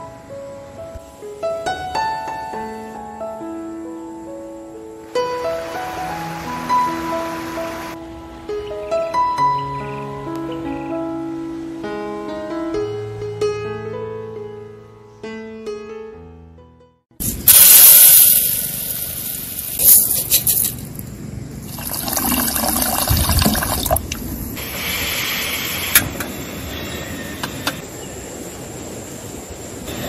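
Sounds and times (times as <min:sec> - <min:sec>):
gas burner hissing: 0:17.2 - 0:21.0, 0:24.4 - 0:27.8
water pouring into a pot: 0:21.7 - 0:24.1.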